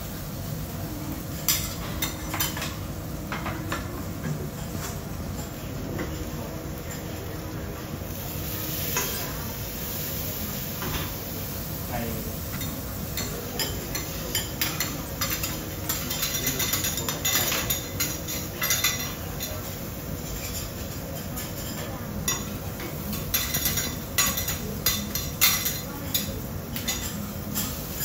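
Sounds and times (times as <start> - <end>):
food sizzling on a griddle: 0.0 - 28.0
metal spatulas scraping and tapping: 12.6 - 19.6.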